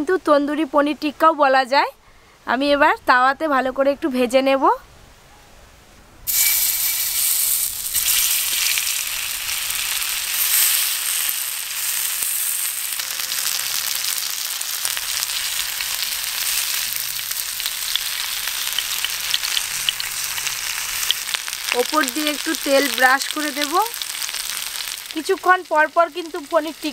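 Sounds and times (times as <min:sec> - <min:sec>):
food frying on a griddle: 0:06.3 - 0:26.9.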